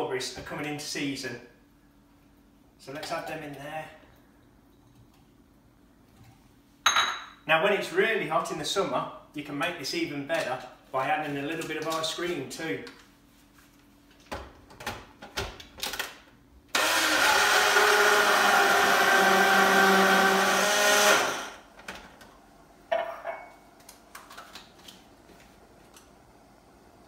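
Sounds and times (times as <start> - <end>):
electric blender whining: 16.7 - 21.6.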